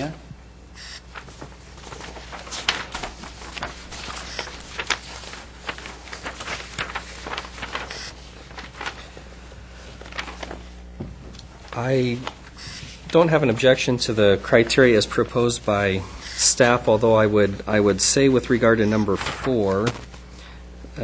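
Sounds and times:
low steady hum: 0.0 - 21.0
papers and objects handled: 1.1 - 9.2, 9.8 - 13.2.

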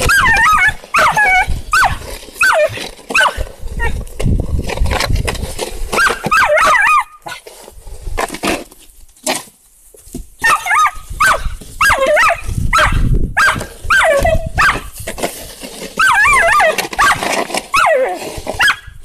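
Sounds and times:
dog whining and yelping: 0.0 - 4.0, 6.0 - 7.4, 10.4 - 14.9, 16.0 - 19.0
plastic shovel scraping snow: 0.0 - 19.0.

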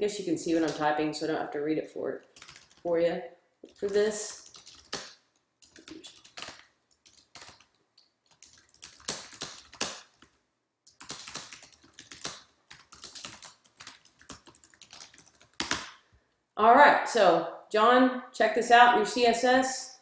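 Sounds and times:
typing on keyboard: 2.2 - 2.9, 3.7 - 16.0.

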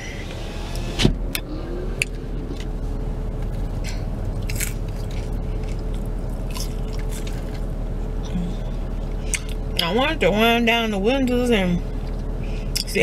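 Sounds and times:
low rumble: 0.0 - 12.9
faint hum: 0.0 - 13.0
crunchy chewing: 3.4 - 8.3.

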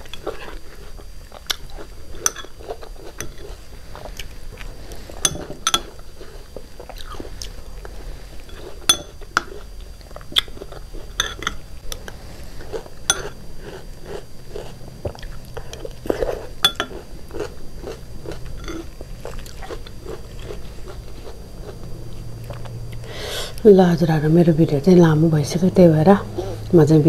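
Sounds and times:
person chewing food: 0.0 - 23.6
metal spoon clinking on glass bowl: 2.2 - 2.5, 5.2 - 5.9, 8.5 - 9.2, 11.2 - 11.6.

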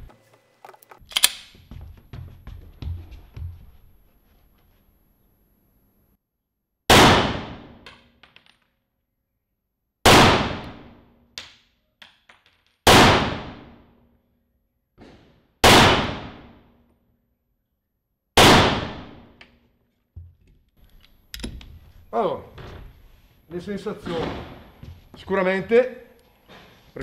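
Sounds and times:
pistol shots: 6.9 - 7.8, 10.0 - 11.0, 12.9 - 13.8, 15.6 - 16.6, 18.4 - 19.4.

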